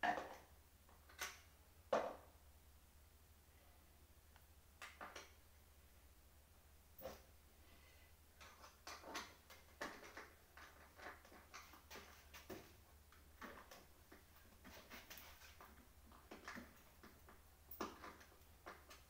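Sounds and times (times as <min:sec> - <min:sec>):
tools clicking and knocking on metal: 0:08.4 - 0:19.0.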